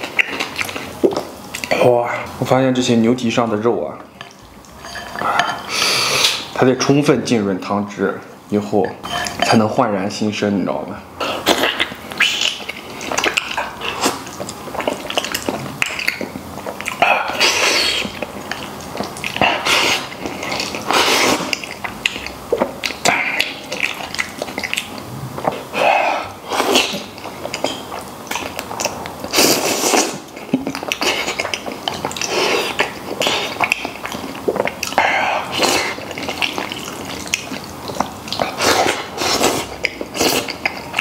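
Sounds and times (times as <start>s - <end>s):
man chewing and slurping: 0.0s - 2.4s, 4.2s - 6.6s, 11.2s - 41.0s.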